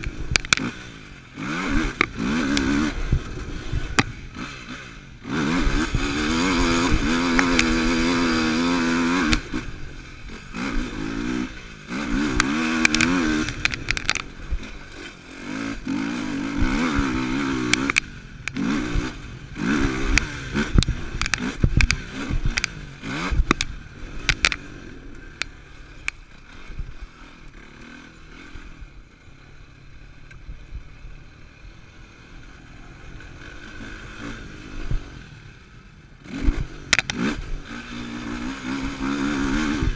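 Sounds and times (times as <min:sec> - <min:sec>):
quad engine revving: 0:00.0 - 0:30.8, 0:31.7 - 0:39.9
knocks and clatter over bumps: 0:12.0 - 0:15.2, 0:19.8 - 0:26.5.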